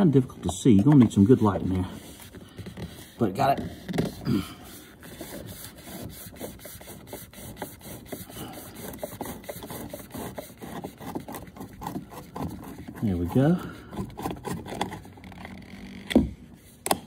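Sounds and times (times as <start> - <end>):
hand rubbing door trim: 0.6 - 13.0
screwdriver scraping and clicking: 4.8 - 13.1, 13.9 - 16.2.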